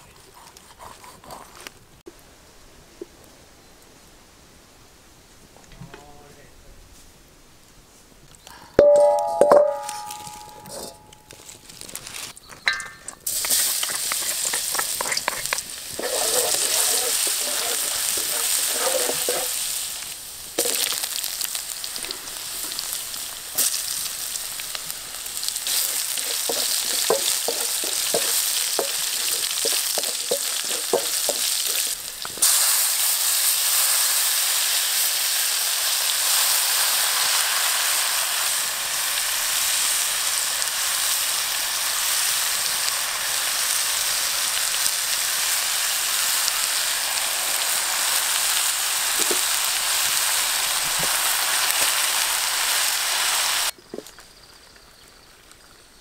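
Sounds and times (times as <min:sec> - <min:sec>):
food sizzling in hot oil: 0:08.8 - 0:53.8
spatula knocking against pan: 0:25.8 - 0:31.5.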